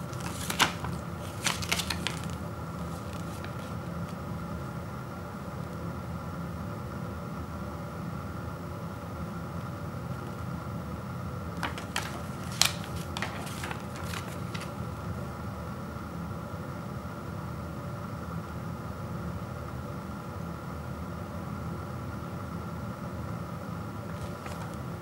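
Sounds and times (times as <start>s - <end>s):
paper leaflet crackling: 0.0s - 4.2s, 11.6s - 14.9s, 24.1s - 25.0s
steady background hum: 0.0s - 25.0s.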